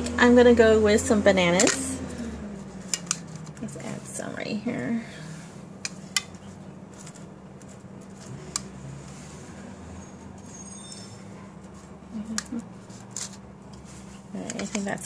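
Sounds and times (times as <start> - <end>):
steady low hum: 0.0 - 10.5.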